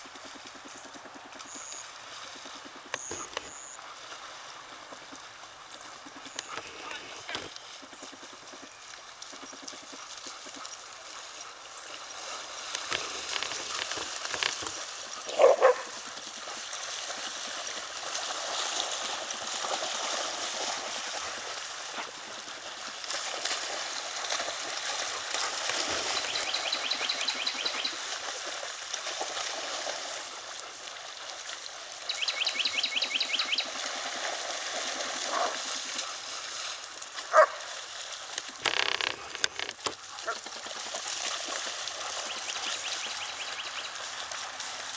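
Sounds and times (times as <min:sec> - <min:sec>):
dogs splashing through water: 0:00.0 - 0:44.9
dog barking: 0:15.3 - 0:16.0, 0:37.3 - 0:37.6.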